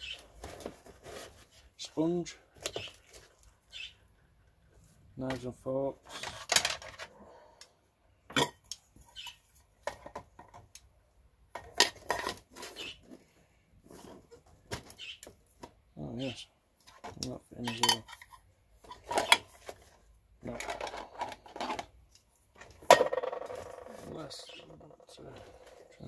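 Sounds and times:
metal pots clinking and knocking: 8.3s - 8.7s, 17.6s - 18.3s.

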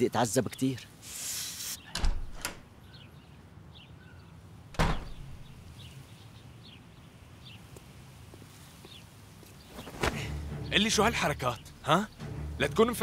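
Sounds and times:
door handle and latch clicking: 1.9s - 2.6s, 4.8s - 5.6s
loud thump: 4.8s - 5.6s.

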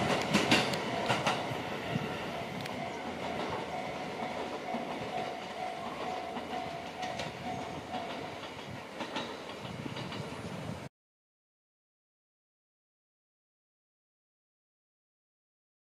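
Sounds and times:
wheels clicking: 0.0s - 10.6s
train rumbling on rails: 0.0s - 10.9s.

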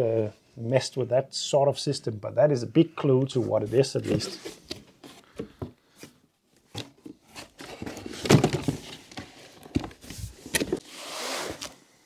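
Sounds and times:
cardboard and paper rustling: 6.7s - 11.8s
heavy parts thunking against box: 7.6s - 10.8s.

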